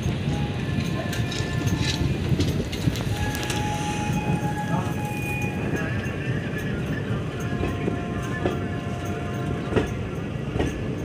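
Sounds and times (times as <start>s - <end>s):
clacks over rail joints: 0.0s - 11.0s
train wheels rumbling on rails: 0.0s - 11.0s.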